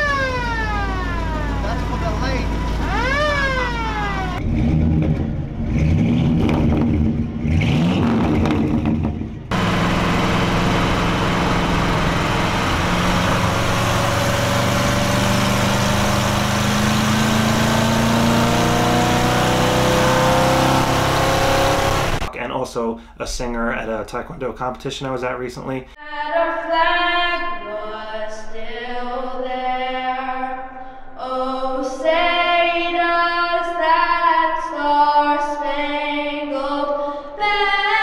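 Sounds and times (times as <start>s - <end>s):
engine drone inside cab: 0.0s - 22.3s
pickup truck engine revving: 0.0s - 22.3s
road noise: 0.0s - 22.3s.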